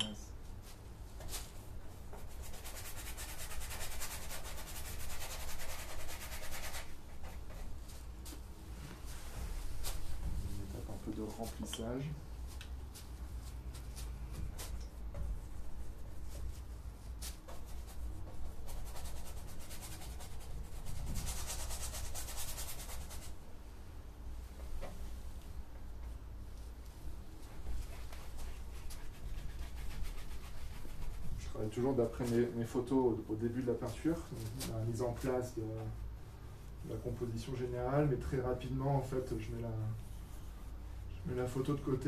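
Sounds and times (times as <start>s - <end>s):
paintbrush scrubbing canvas: 1.3s - 8.4s, 13.0s - 23.4s, 27.4s - 32.4s.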